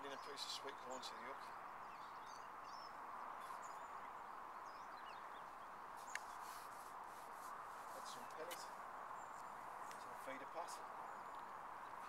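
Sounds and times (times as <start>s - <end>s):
faint bird chirps: 0.0s - 6.8s.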